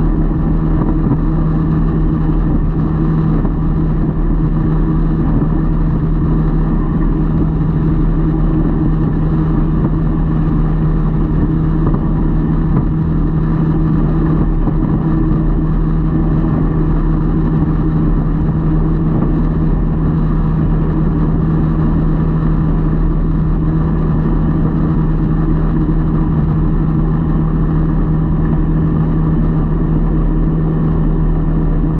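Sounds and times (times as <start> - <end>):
boat motor humming: 0.0 - 31.9.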